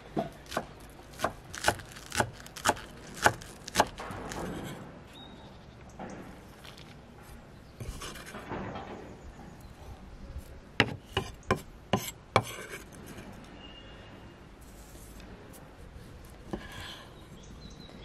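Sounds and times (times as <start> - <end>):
knife chopping on wooden board: 0.1 - 4.8, 10.8 - 12.6.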